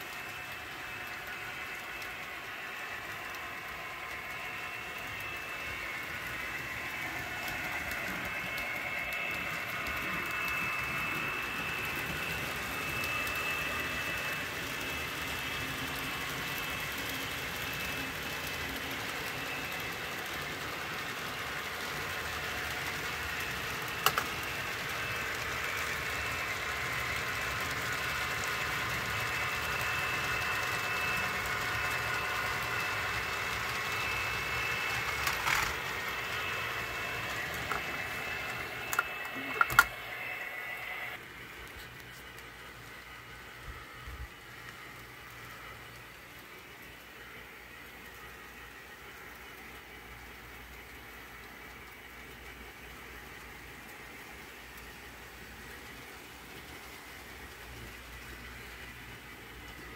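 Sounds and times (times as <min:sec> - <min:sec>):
thin high whine: 0:00.0 - 0:42.5
model train motors whirring: 0:00.0 - 0:59.9
wheels rolling on track: 0:00.0 - 0:59.9.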